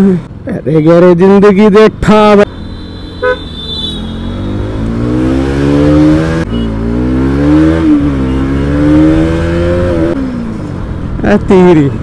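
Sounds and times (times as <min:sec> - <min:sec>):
motorcycle engine accelerating: 0:03.0 - 0:10.4.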